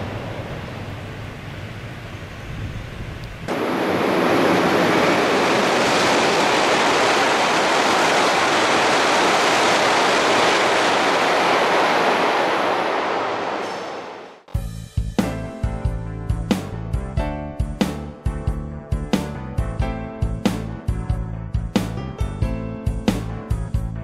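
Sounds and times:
high-speed train passing: 0.0 - 2.3, 3.4 - 14.5.

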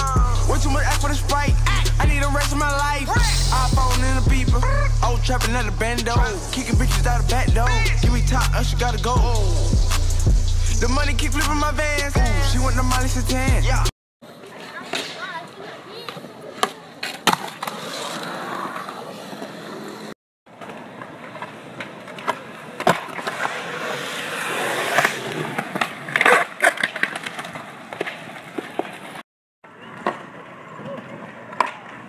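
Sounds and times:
skateboard wheels rolling on concrete: 14.2 - 32.0
skateboard clacks: 14.5 - 29.2, 29.8 - 32.0.

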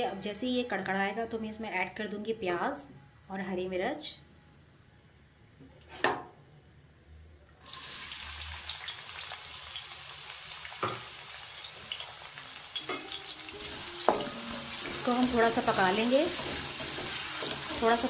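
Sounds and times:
onions sizzling in oil: 7.6 - 18.0.

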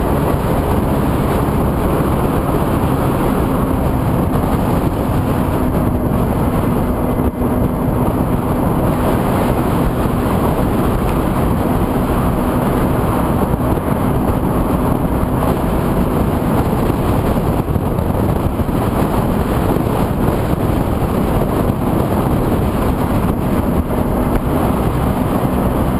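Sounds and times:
moped engine running: 0.0 - 25.9
wind noise on microphone: 0.0 - 25.9.

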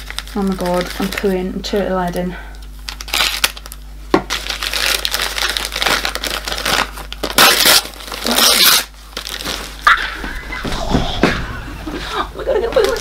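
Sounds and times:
packaging tearing: 0.0 - 1.4, 2.1 - 9.8
packaging crinkling and rustling: 0.0 - 9.8, 12.7 - 13.0.

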